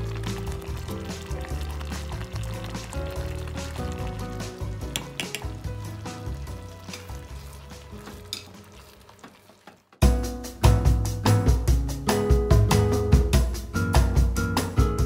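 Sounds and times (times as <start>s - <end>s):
music: 0.0s - 9.2s, 10.0s - 15.0s
stew bubbling in a pot: 0.0s - 10.0s
ladle clicking while stirring: 4.8s - 5.6s, 7.9s - 9.7s.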